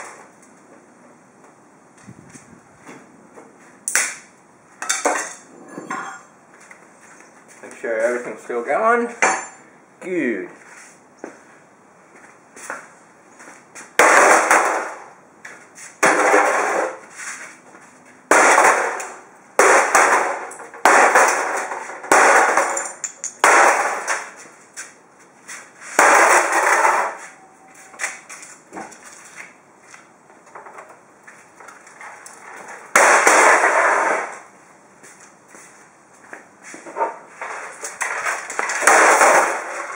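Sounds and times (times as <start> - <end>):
metal casing smashed on concrete: 14.0 - 15.1, 16.0 - 17.0, 18.3 - 24.4, 26.0 - 27.5, 32.9 - 34.4, 37.7 - 39.9.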